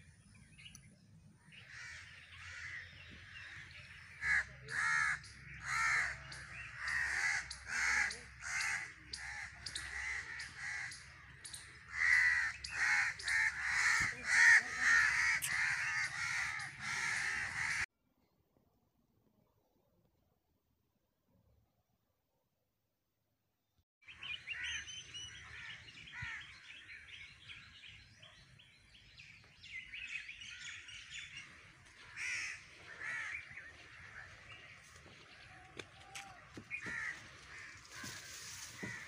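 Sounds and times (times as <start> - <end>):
crows cawing: 1.6 - 17.9, 25.4 - 26.8, 30.4 - 39.0.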